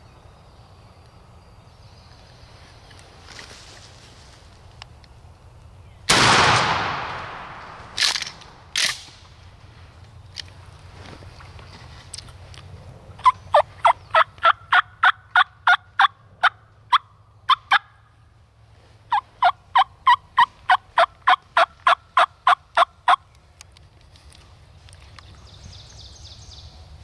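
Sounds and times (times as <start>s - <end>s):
turkey yelping: 13.2s - 18.0s, 19.1s - 23.2s.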